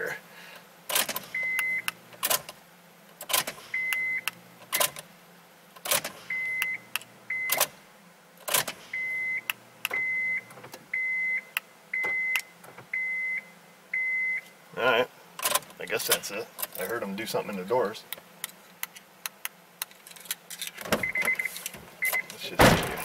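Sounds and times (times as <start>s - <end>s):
car warning chime beeping: 1.4s - 2.0s, 3.8s - 4.9s, 6.3s - 7.6s, 9.0s - 14.5s, 21.0s - 22.3s.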